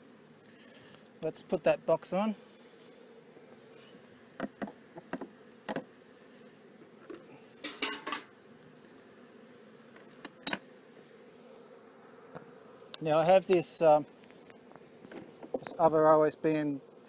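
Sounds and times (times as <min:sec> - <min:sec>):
honey bees humming: 0:00.0 - 0:17.0.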